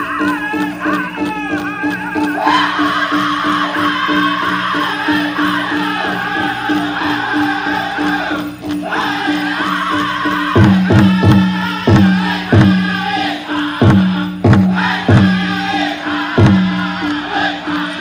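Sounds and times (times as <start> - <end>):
high-pitched voices chanting: 0.0 - 18.0
big drum heavy beats: 10.4 - 17.6.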